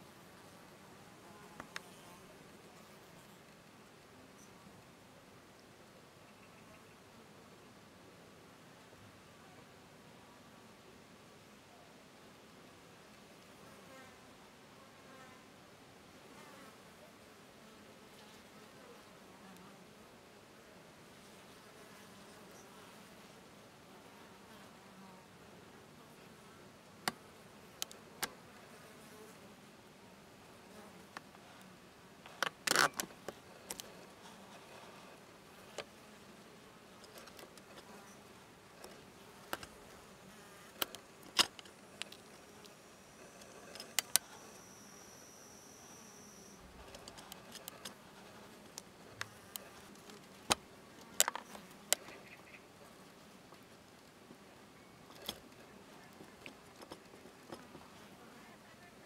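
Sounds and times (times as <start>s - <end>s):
sharp clicks: 43.4s - 44.4s.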